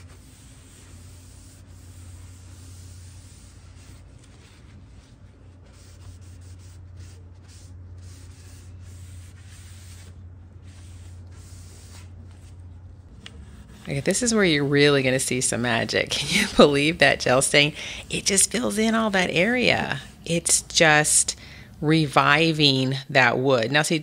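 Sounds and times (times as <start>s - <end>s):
cloth rag wiping wood: 0.0s - 12.6s
low hum: 0.0s - 23.0s.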